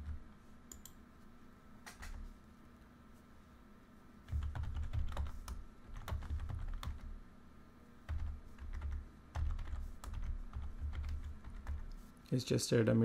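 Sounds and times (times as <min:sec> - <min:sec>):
typing on a keyboard: 0:04.3 - 0:07.1, 0:08.1 - 0:12.0.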